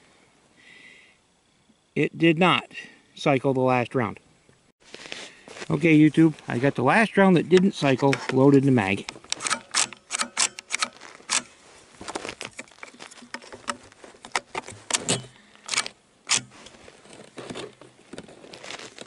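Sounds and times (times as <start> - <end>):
glove rustle: 4.8 - 7.2, 10.8 - 15.1, 16.5 - 19.0
rifle parts clicking: 9.0 - 11.5, 12.4 - 16.6.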